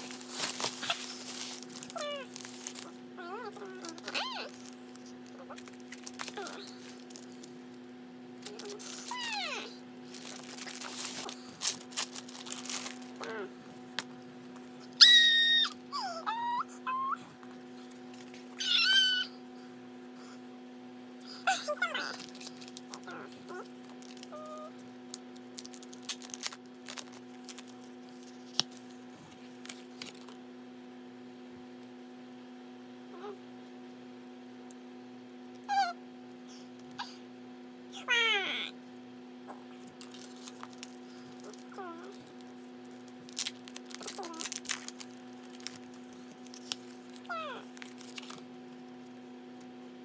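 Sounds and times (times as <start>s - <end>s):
packaging rustling and crinkling: 0.0s - 7.6s, 8.4s - 13.4s, 22.0s - 30.4s, 39.9s - 48.8s
steady low hum: 0.0s - 50.0s.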